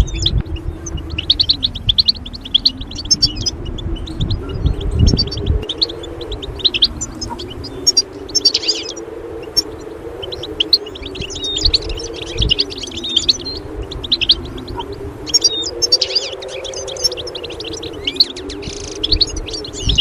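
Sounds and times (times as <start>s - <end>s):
low wavering hum: 0.0s - 20.0s
songbirds chirping: 0.0s - 20.0s.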